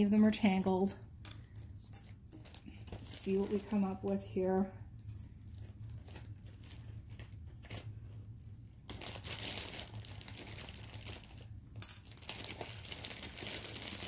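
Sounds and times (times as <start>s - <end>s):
plastic bags crinkling: 2.2s - 4.3s, 5.5s - 14.0s.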